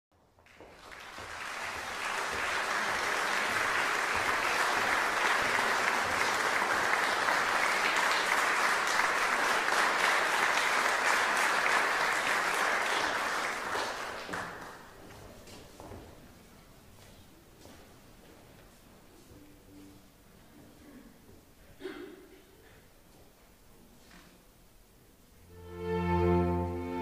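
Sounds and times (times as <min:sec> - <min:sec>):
audience applauding: 0:00.4 - 0:15.1.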